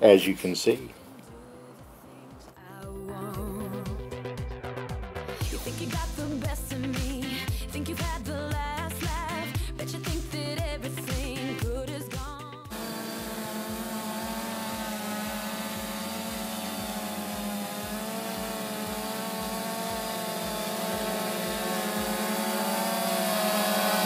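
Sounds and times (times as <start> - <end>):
drone propellers buzzing hum: 12.7 - 24.0.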